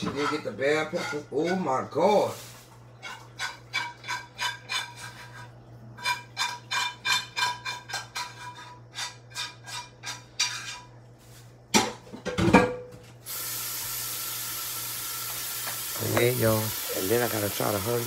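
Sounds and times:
utensils tapping metal cookware: 0.0 - 1.7, 3.0 - 10.9
cookware clattering: 0.0 - 1.9, 3.0 - 11.0, 11.7 - 13.0
food sizzling in hot pan: 13.2 - 18.0.

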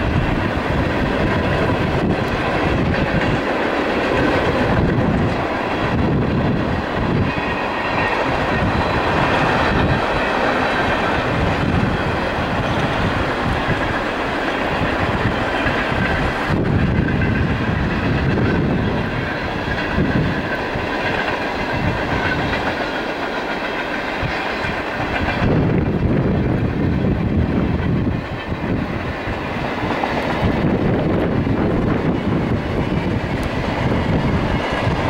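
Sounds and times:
freight train wheels rolling on rails: 0.0 - 35.0.

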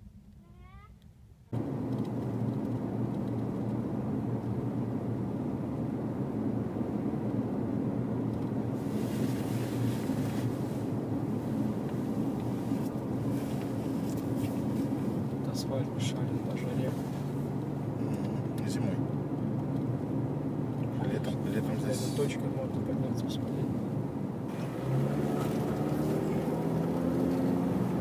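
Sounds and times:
car engine and tyre rumble: 1.2 - 28.0
wind and tyre hiss: 1.6 - 28.0.

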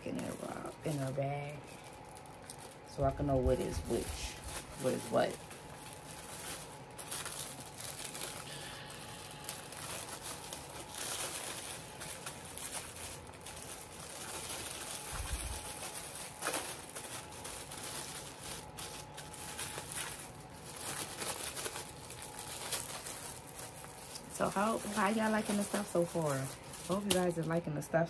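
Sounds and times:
plastic packaging crinkling: 0.0 - 28.0.

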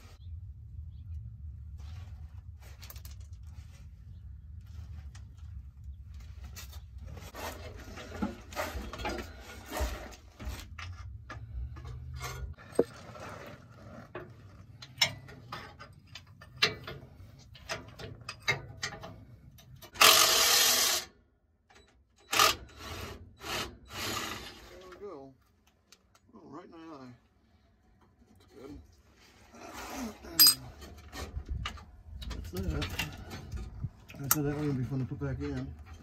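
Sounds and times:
wrench clicking and scraping on bolts: 30.4 - 31.1.

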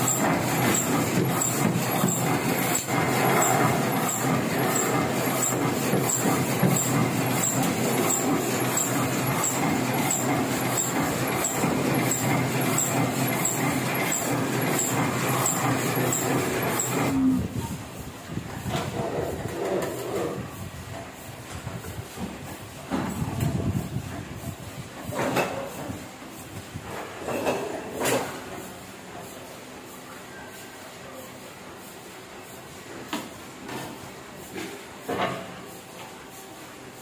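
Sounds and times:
machine clicking regularly: 0.0 - 17.2
printing machinery running: 0.0 - 37.0.

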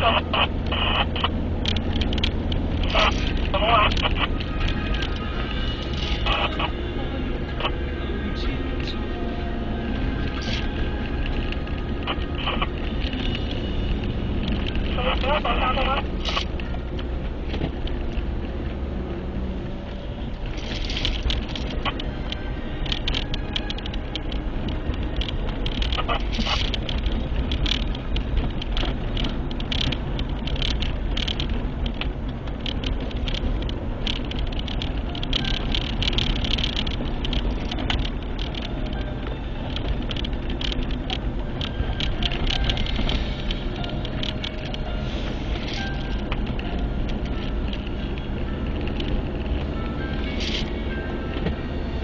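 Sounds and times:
car road and engine rumble: 0.0 - 52.0.

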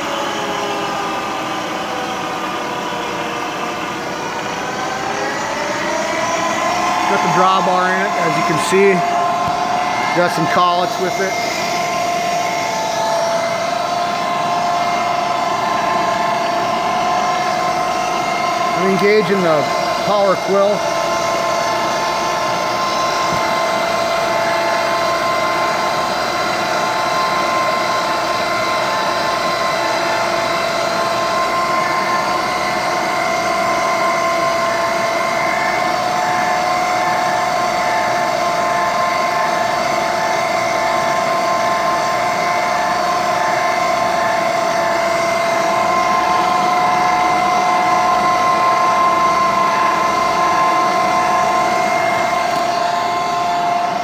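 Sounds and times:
milling machine whine: 0.0 - 54.0.

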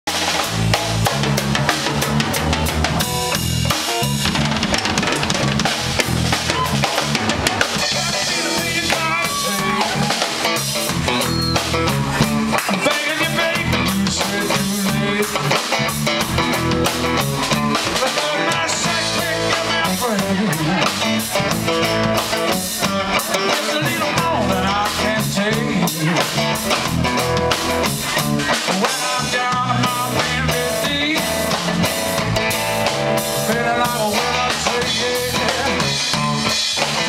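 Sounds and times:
drum kit beats: 0.0 - 37.0
electric guitar: 0.1 - 37.0
low bass notes: 0.1 - 37.0
man singing: 7.7 - 10.5, 12.6 - 16.0, 17.6 - 26.8, 28.5 - 31.9, 33.2 - 36.6.

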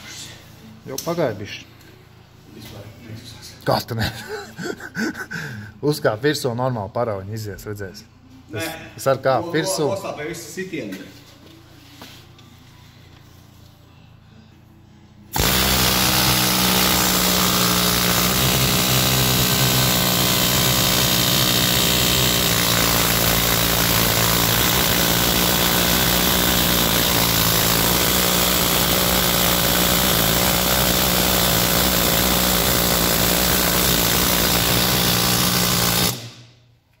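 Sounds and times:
power tool running: 15.3 - 36.6.

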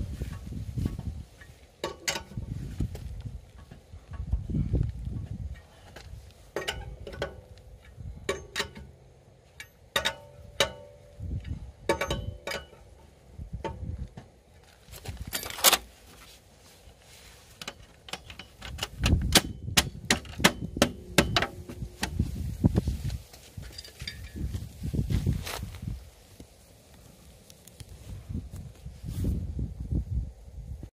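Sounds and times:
lug wrench clinking on wheel nuts: 6.5 - 13.0, 17.6 - 22.2, 23.6 - 24.5.

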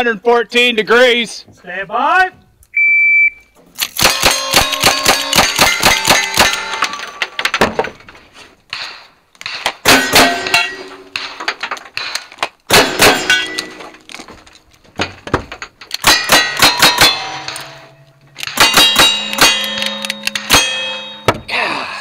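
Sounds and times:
gunshots: 3.8 - 7.2, 8.7 - 11.4, 12.0 - 13.8, 16.0 - 20.9
steel targets ringing: 4.0 - 7.4, 8.7 - 11.5, 12.7 - 14.0, 16.0 - 21.6
firearm handling sounds: 15.6 - 20.7.

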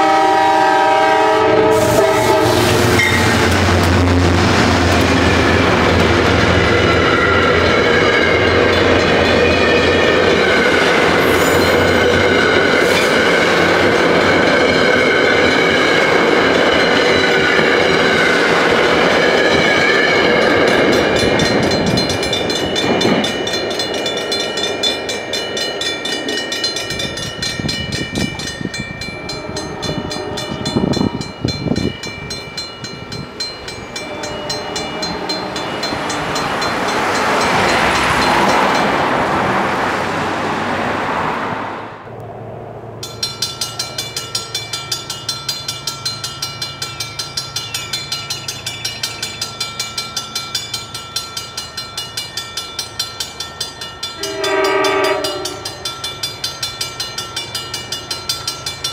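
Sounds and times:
crossing warning bell ringing: 0.0 - 39.9, 43.0 - 58.9
car passing: 35.0 - 43.0.

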